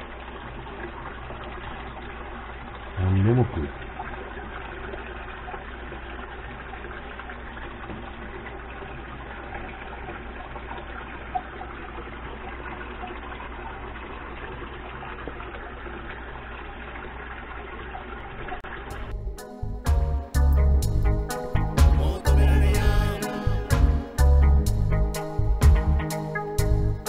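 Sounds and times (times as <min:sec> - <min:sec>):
muffled underwater rushing water: 0:00.0 - 0:19.3.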